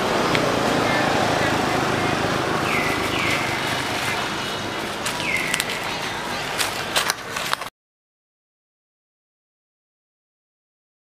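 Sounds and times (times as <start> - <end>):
murmur of voices: 0.1 - 7.6
whistled calls: 0.7 - 6.6.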